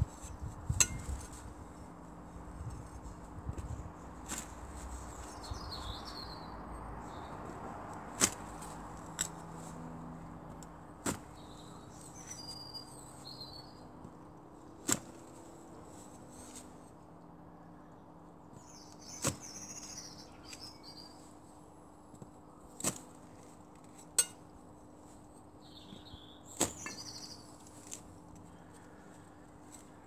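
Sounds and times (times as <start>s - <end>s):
lawn edger chopping turf: 8.1s - 8.5s
birds chirping: 25.5s - 27.8s.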